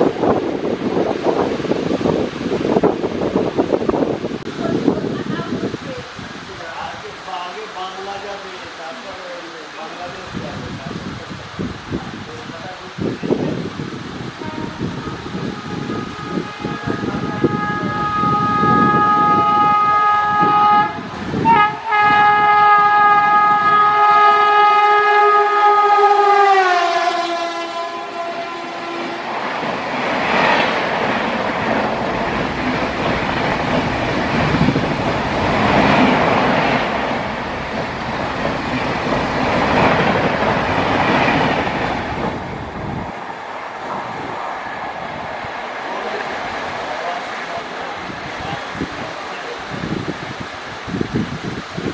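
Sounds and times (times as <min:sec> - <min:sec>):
train wheels on rails rushing past: 0:12.0 - 0:50.5
locomotive horn: 0:14.3 - 0:29.5.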